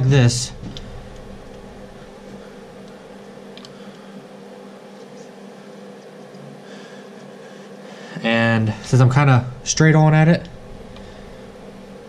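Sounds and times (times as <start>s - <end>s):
fan humming: 0.0s - 12.0s.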